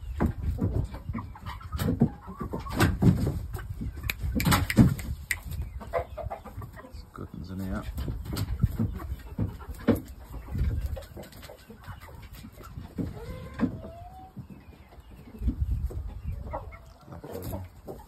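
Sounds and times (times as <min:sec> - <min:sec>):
chickens clucking and calling: 0:00.0 - 0:18.0.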